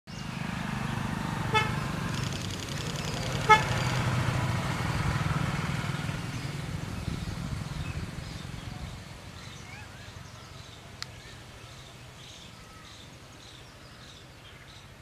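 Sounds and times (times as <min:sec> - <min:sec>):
low rumble of traffic: 0:00.1 - 0:15.0
vehicle horn toots: 0:01.5 - 0:01.8, 0:03.4 - 0:04.0.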